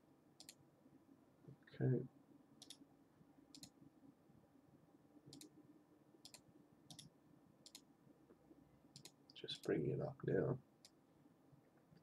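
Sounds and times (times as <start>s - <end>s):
faint computer clicks: 2.6s - 2.8s, 3.5s - 3.8s, 5.3s - 5.5s, 6.2s - 7.9s, 8.9s - 9.8s.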